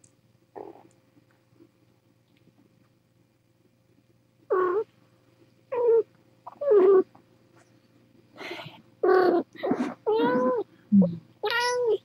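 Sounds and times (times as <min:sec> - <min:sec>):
kitten mewing: 0:09.0 - 0:12.0.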